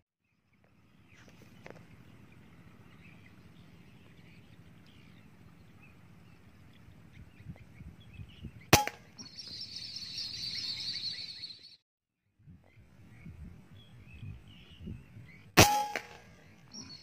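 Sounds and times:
air rifle shot: 8.8 - 9.2, 15.6 - 16.4.

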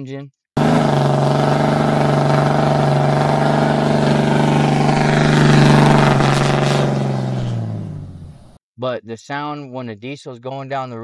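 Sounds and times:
loud diesel exhaust: 0.6 - 8.6.

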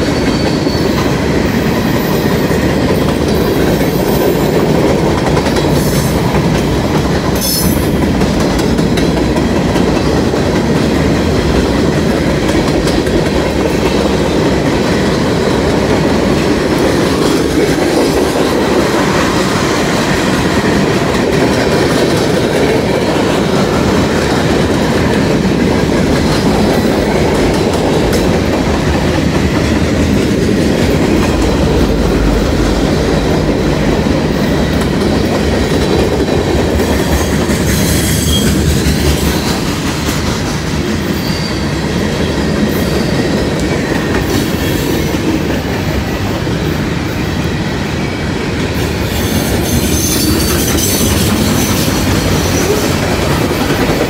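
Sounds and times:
train wheels rumbling on rail: 0.0 - 54.0
high-pitched wheel squeal: 41.1 - 41.7.

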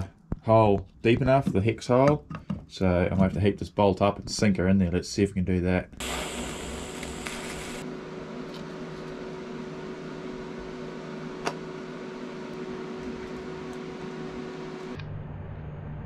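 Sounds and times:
gas torch flame hissing: 6.0 - 7.8
steady hum: 6.0 - 16.0.

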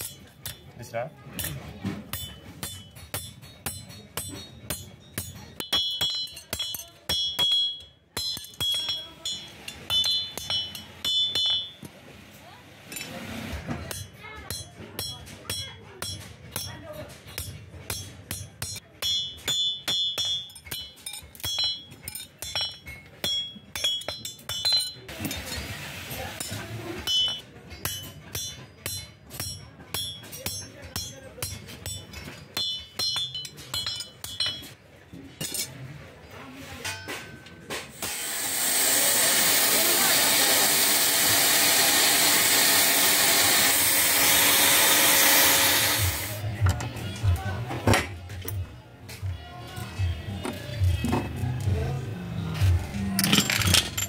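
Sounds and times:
hammer ringing on steel anvil: 1.4 - 11.8, 13.9 - 25.1, 26.4 - 34.8
loud rushing hiss: 38.0 - 46.4.

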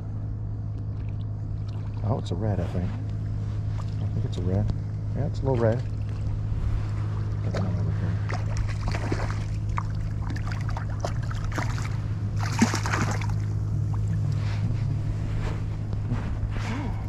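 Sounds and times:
steady low hum: 0.0 - 17.0
fish splashing at surface: 8.2 - 13.5.

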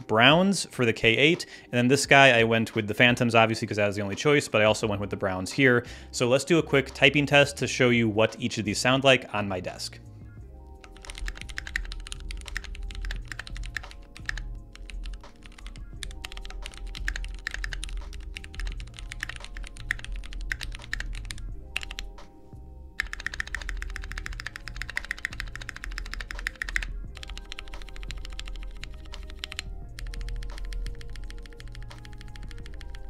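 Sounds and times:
background music: 0.0 - 33.0
fast mechanical keyboard typing: 10.8 - 22.1, 23.0 - 33.0.

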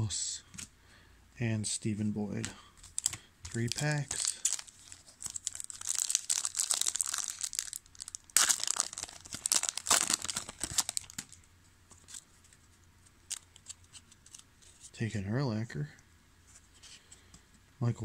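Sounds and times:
foil wrapper tearing and crinkling: 2.9 - 11.4.

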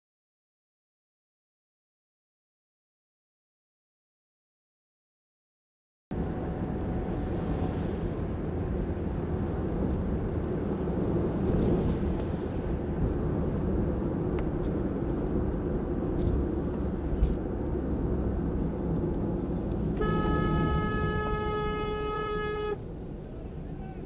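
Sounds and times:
car road and wind noise: 6.1 - 24.0
vehicle horn blast: 19.9 - 22.8.

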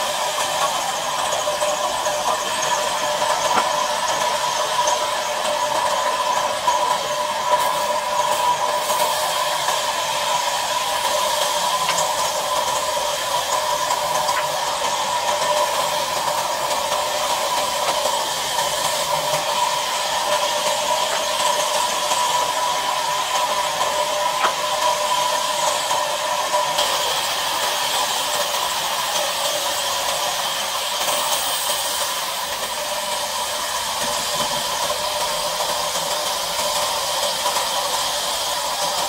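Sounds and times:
band saw cutting log: 0.0 - 29.8.

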